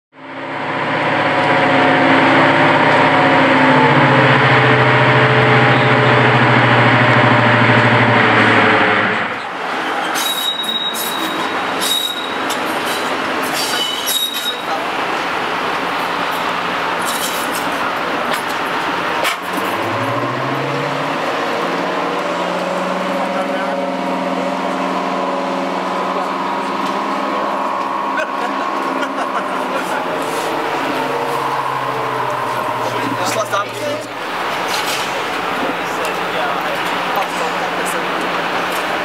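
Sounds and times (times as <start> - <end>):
diesel locomotive engine running: 0.2 - 39.0
droning held tones: 0.4 - 9.1, 19.7 - 36.6
thin high squeal: 9.8 - 14.8.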